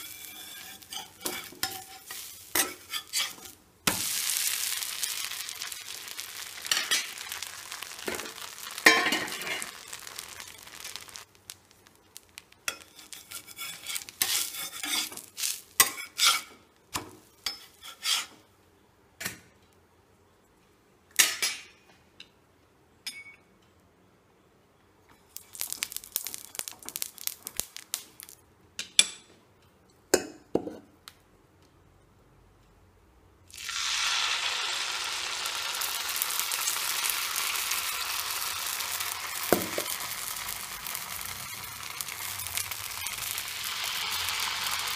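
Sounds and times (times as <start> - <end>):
batter sizzling on hot pan: 0.0 - 18.4, 25.2 - 28.4, 33.5 - 44.9.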